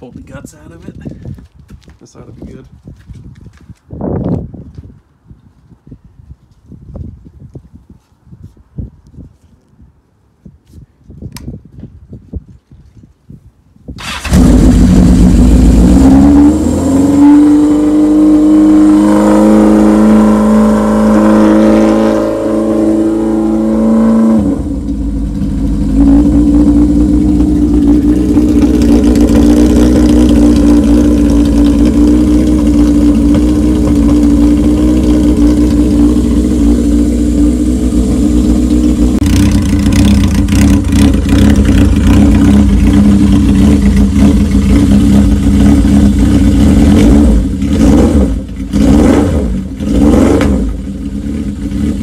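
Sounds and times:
motorcycle engine idling: 0:24.8 - 0:48.8.

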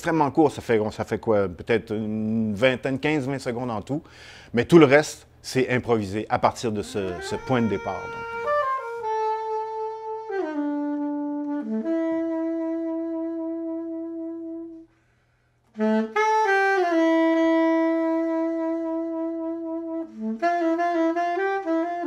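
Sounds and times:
soprano saxophone jazz melody: 0:06.4 - 0:15.0, 0:15.7 - 0:22.0.

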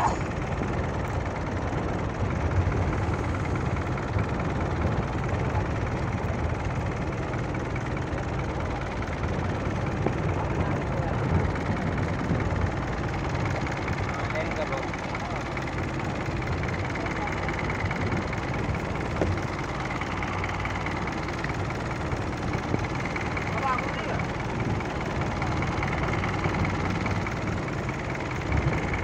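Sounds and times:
water noise: 0:00.0 - 0:14.4
boat engine humming: 0:00.0 - 0:29.0
wind: 0:00.0 - 0:29.0.

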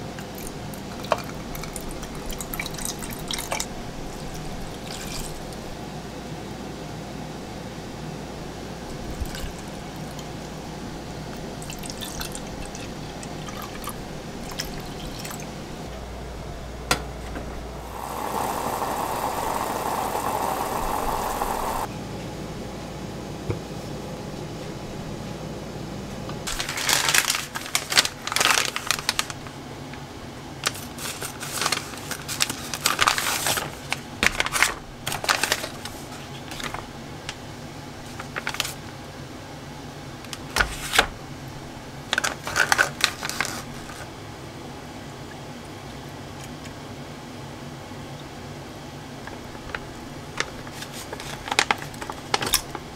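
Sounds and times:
liquid pouring into a pot: 0:17.8 - 0:21.9
plastic packets crinkling: 0:26.5 - 0:29.4.

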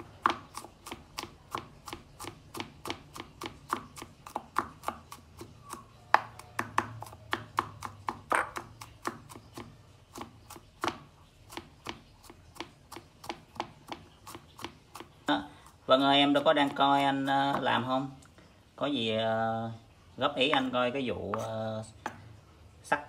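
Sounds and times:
knife chopping on wooden board: 0:00.0 - 0:15.4.

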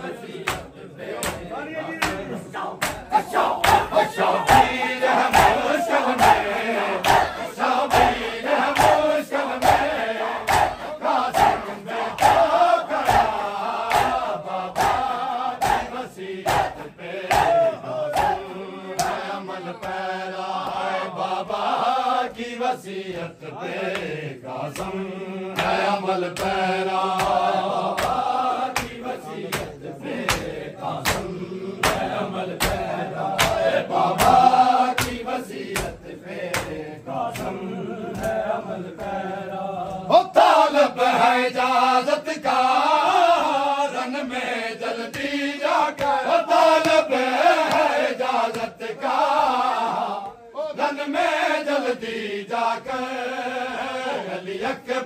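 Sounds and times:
men chanting in unison: 0:00.0 - 0:55.0
hand slaps on chest: 0:00.4 - 0:02.2, 0:02.8 - 0:04.7, 0:07.0 - 0:09.0, 0:10.5 - 0:11.6, 0:12.2 - 0:15.9, 0:19.0 - 0:19.2, 0:25.6 - 0:38.4, 0:45.1 - 0:46.2, 0:46.8 - 0:48.8.

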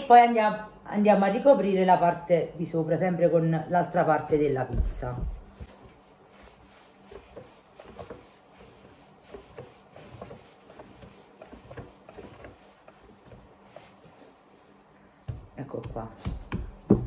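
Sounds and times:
dough being kneaded by hand: 0:03.8 - 0:17.0.

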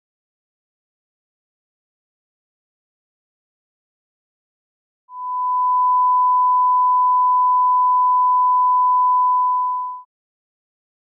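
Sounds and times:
sine-wave reference tone: 0:05.1 - 0:10.1.

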